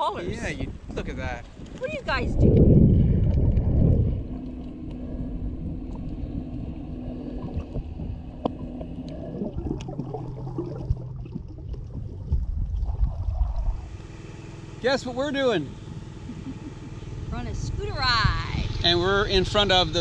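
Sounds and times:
muffled underwater rumble: 0.4s - 14.0s
low hum: 1.5s - 20.0s.

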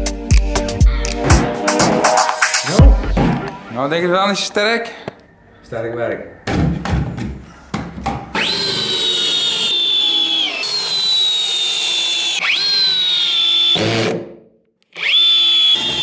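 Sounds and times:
electric drill whining: 8.3s - 14.2s, 14.8s - 16.0s.

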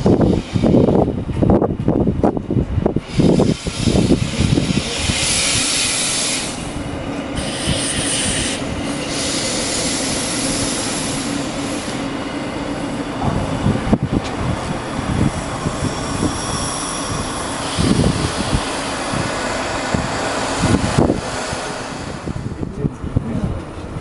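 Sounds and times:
train wheels hissing on rails: 0.0s - 1.5s, 2.3s - 23.0s
wind buffeting microphone: 0.0s - 24.0s.

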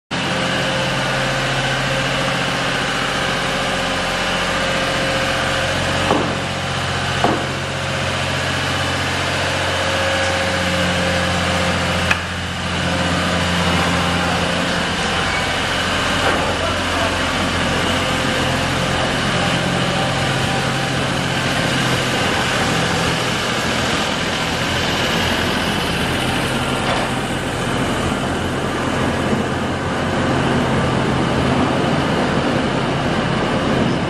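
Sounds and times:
locomotive engine hum: 0.1s - 34.0s
sharp knocks: 6.0s - 6.6s, 7.2s - 7.7s.

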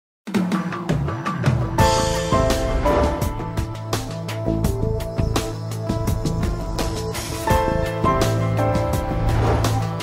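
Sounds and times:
tv theme music: 0.3s - 10.0s.

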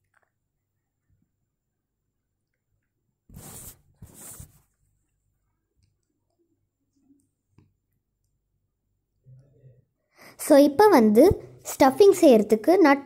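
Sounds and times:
pastry sheets rustling: 3.3s - 4.8s.

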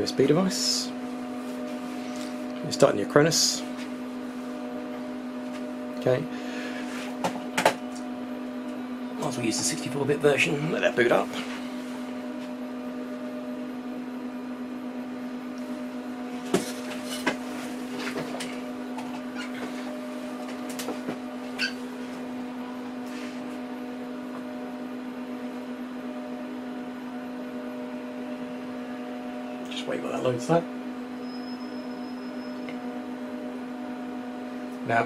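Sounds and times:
server cooling fans humming: 0.0s - 35.0s.

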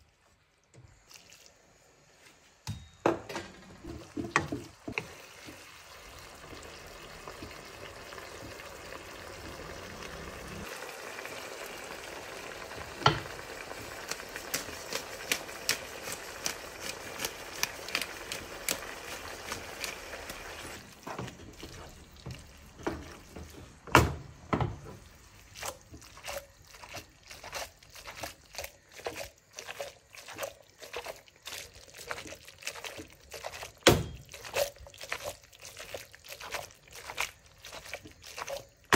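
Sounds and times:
food sizzling in a pan: 3.6s - 23.8s.

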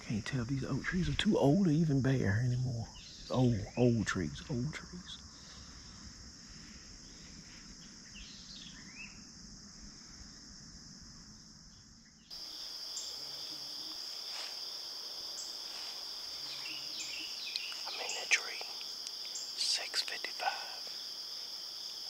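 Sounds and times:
high-pitched insect chorus: 0.0s - 22.0s
bird chirps: 7.0s - 9.3s, 16.4s - 19.8s.

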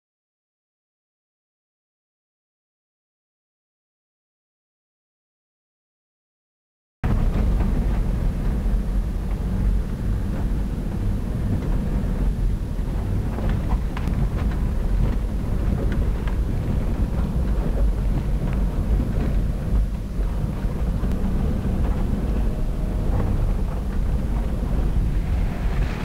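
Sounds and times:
engine and road rumble: 7.0s - 26.0s
knocks and rattles: 7.0s - 26.0s
hiss: 25.1s - 26.0s.

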